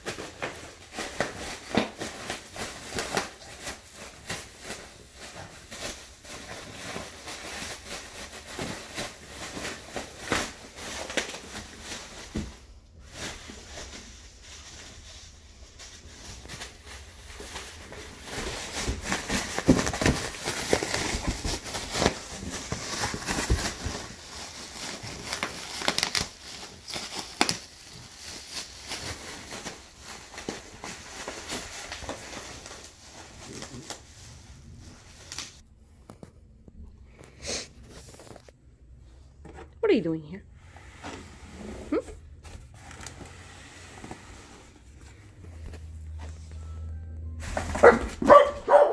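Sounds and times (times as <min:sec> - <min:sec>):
cardboard rustling: 0:00.0 - 0:35.6, 0:40.7 - 0:48.9
plastic packing crinkling: 0:00.0 - 0:35.6.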